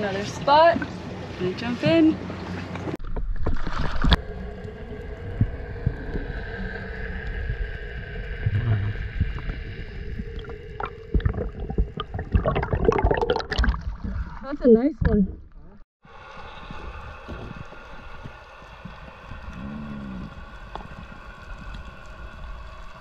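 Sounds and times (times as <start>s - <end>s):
water movement: 0.0s - 23.0s
underwater knocks and thumps: 2.8s - 4.2s, 10.2s - 14.4s, 15.0s - 15.6s
muffled underwater rumble: 3.0s - 23.0s.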